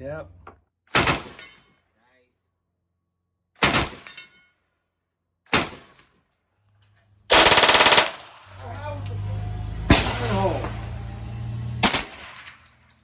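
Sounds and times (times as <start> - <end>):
submachine gun full-auto burst: 7.3 - 8.3
single machine gun shot: 7.3 - 8.4.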